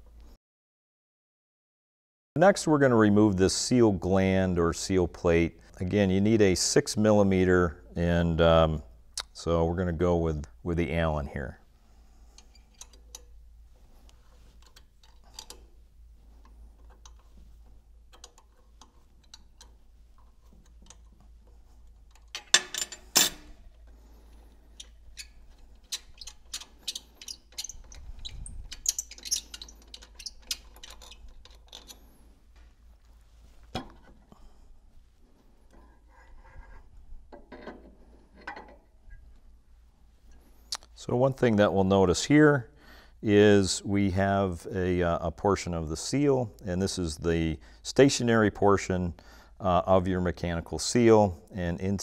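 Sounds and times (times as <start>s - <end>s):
metallic ticks and clicks: 18.1s - 23.5s, 24.7s - 32.0s
metal on metal clatter: 22.2s - 23.6s.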